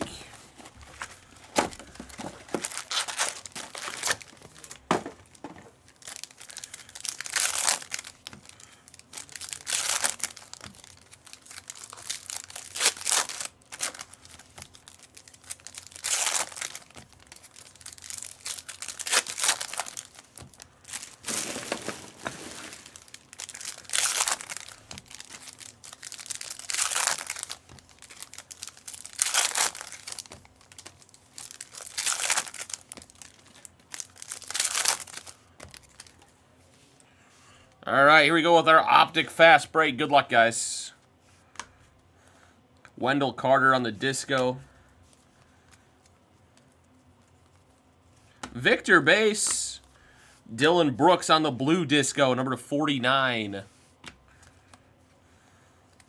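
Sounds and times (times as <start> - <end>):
foil packs torn and crinkled: 1.1 - 36.3.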